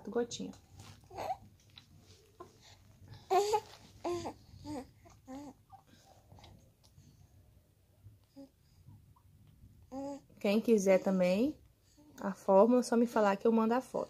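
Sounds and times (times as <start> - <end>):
baby cooing and babbling: 1.0 - 1.6, 2.4 - 5.9, 9.9 - 10.3.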